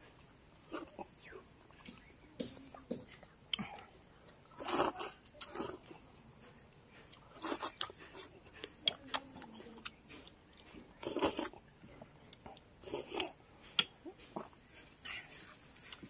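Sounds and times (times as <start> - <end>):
chewing: 0.0 - 16.0
wet mouth clicks: 12.3 - 14.9.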